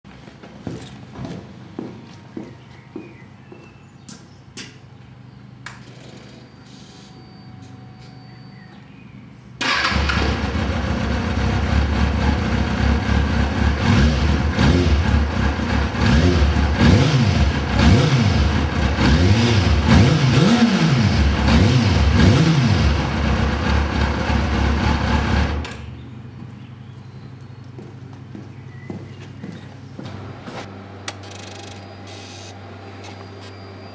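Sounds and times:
footsteps: 0.1s - 4.8s, 26.4s - 30.7s
motorcycle engine idling and revving: 9.6s - 28.3s.

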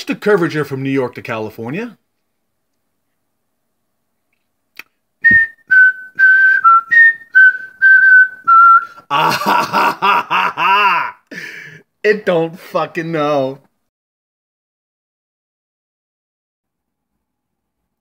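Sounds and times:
person whistling a tune: 5.2s - 9.0s.

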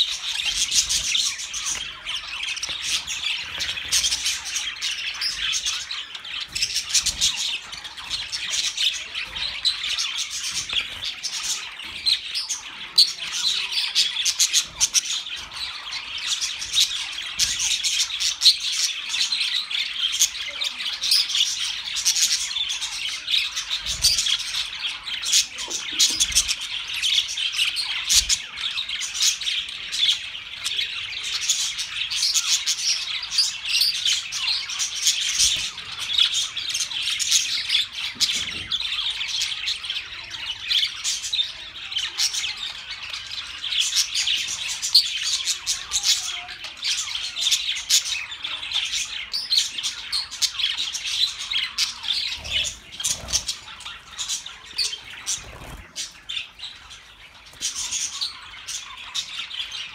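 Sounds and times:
budgerigars chattering and chirping: 0.0s - 59.9s.

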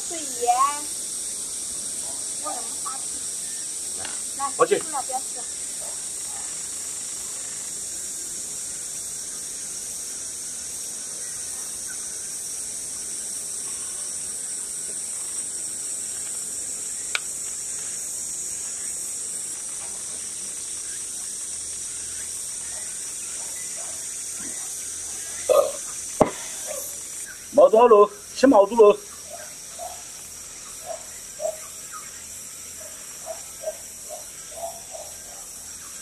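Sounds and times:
insects chorus: 0.0s - 36.0s.

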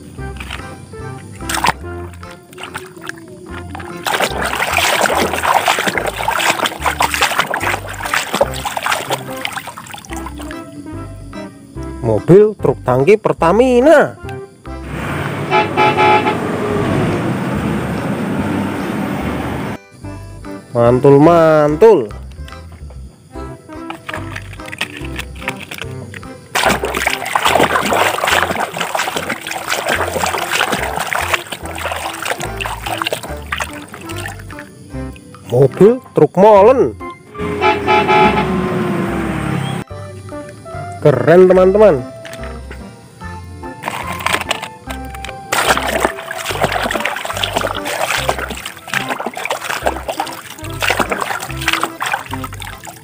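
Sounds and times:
water splashing in a tub: 0.0s - 10.8s, 23.7s - 36.0s, 43.8s - 53.0s.

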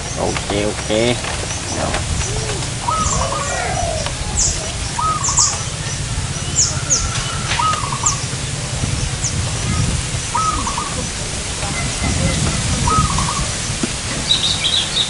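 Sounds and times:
dove cooing: 0.0s - 15.0s
small birds chirping: 0.0s - 15.0s.

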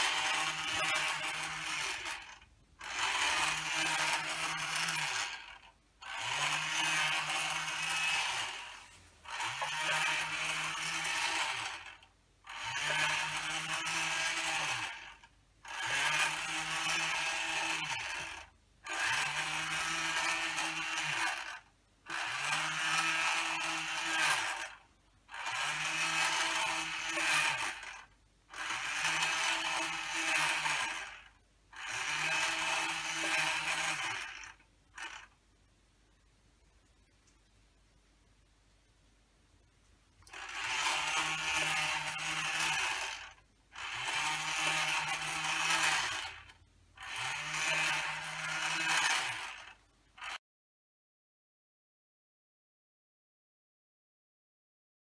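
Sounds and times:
motor whirring: 0.0s - 35.3s, 40.2s - 50.4s.

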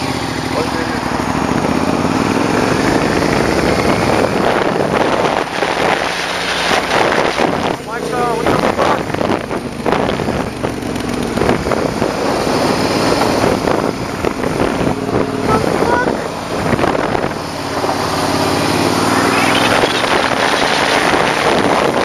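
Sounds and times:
motorcycle engine: 0.0s - 22.0s
wind buffeting microphone: 1.0s - 22.0s.

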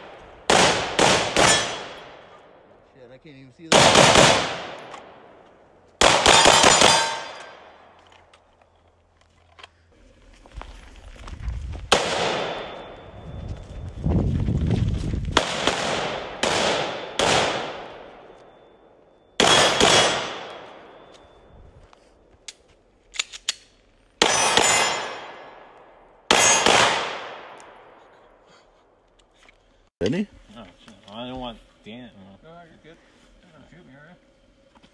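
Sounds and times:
gunshots echoing: 0.0s - 2.6s, 3.7s - 5.4s, 6.0s - 7.9s, 11.9s - 12.8s, 15.4s - 18.4s, 19.4s - 21.1s, 24.2s - 28.0s
thin ringing tone: 12.4s - 14.0s, 18.0s - 19.4s, 20.6s - 21.9s.

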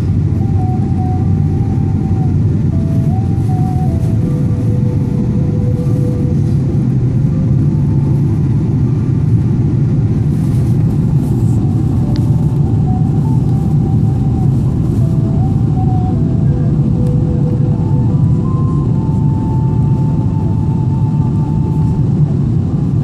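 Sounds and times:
jet engine rumble in cabin: 0.0s - 23.0s
faint thin tones shifting pitch: 0.3s - 6.8s, 11.3s - 22.1s.

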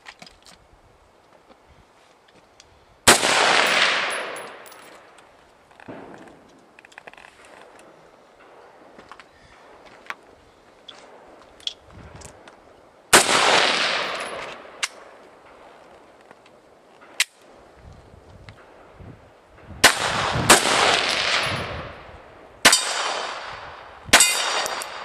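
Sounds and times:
echo rolling off hills: 0.9s - 25.0s
rifle shots: 3.1s - 5.0s, 13.1s - 15.1s, 19.8s - 22.0s, 22.6s - 25.0s.

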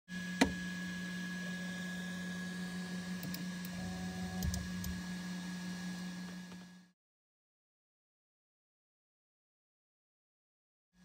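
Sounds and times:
steady hum: 0.1s - 6.2s
stepper motor whining: 0.2s - 6.6s.

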